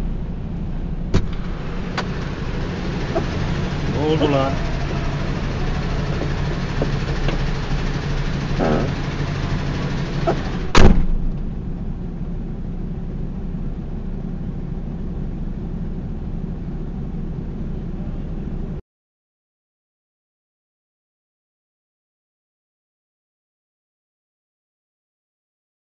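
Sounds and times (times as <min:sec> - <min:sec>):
vehicle engine idling: 0:00.2 - 0:18.8.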